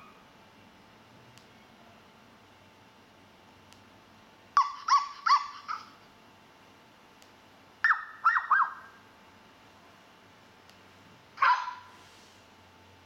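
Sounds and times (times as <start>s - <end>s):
faint click: 1.4s - 1.6s
recorded dog barks from speaker: 7.9s - 8.9s, 11.4s - 12.0s.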